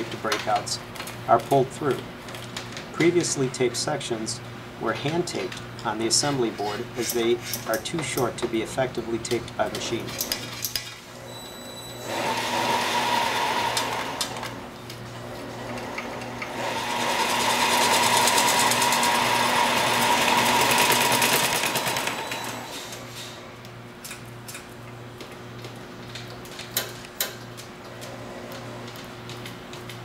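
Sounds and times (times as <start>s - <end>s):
taping machine whirring: 11.2s - 14.6s, 15.4s - 23.4s.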